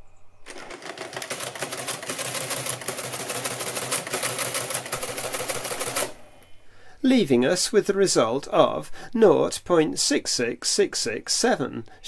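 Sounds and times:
mechanical calculator clattering: 0.5s - 6.3s.

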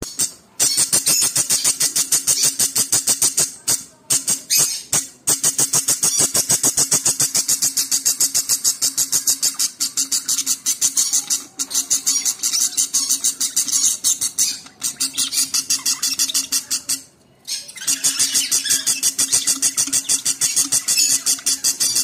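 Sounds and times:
bird chicks begging chirps: 0.0s - 22.0s.

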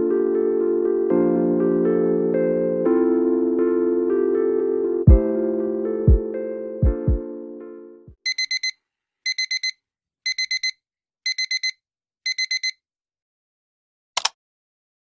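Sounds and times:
music: 0.0s - 8.2s
electronic alarm beeping: 8.3s - 12.8s.

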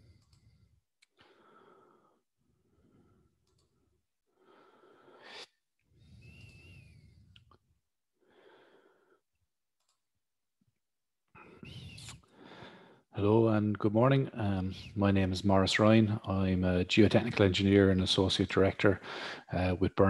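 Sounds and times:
breathing into microphone: 0.0s - 3.4s, 4.4s - 7.5s, 8.2s - 9.2s, 11.4s - 13.1s, 19.0s - 19.6s
faint clicks: 0.2s - 1.3s, 3.4s - 3.7s.

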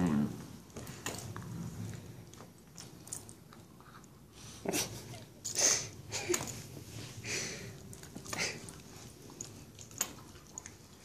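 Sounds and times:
wet mouthing and chewing: 7.7s - 11.0s.

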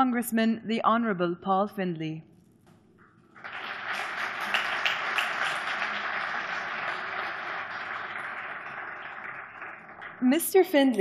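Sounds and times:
audience applauding: 3.3s - 10.4s.

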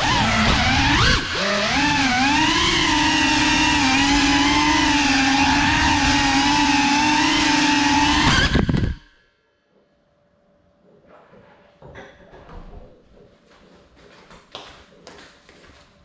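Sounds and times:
drone propellers whining: 0.0s - 9.1s.

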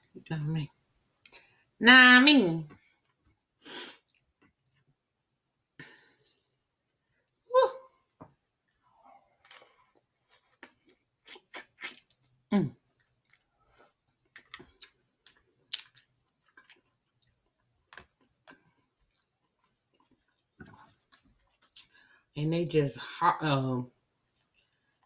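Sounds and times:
wet chewing: 13.0s - 22.0s, 24.3s - 25.0s
crab shells cracking: 14.3s - 16.8s.

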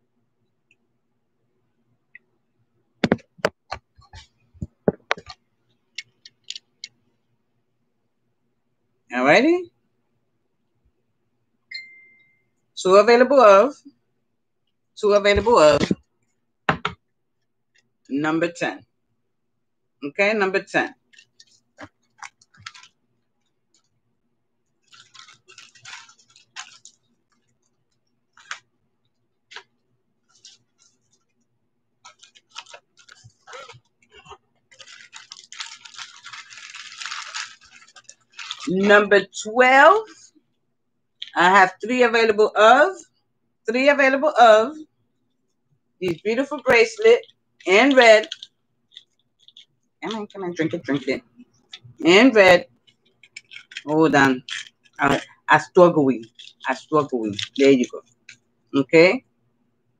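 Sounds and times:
earrings handling clicks and knocks: 3.0s - 7.0s, 46.7s - 52.0s, 52.7s - 55.4s, 56.2s - 58.4s
crackly rustle: 17.4s - 18.1s, 20.9s - 39.3s, 45.2s - 58.8s.

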